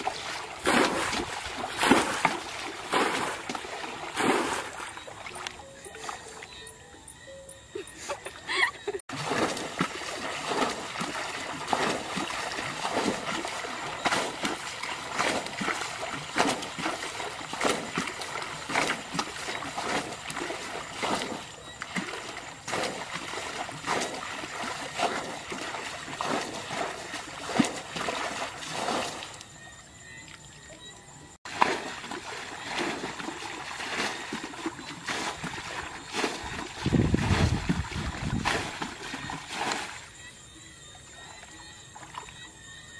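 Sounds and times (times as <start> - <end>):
muddy water splashing: 0.0 - 42.9.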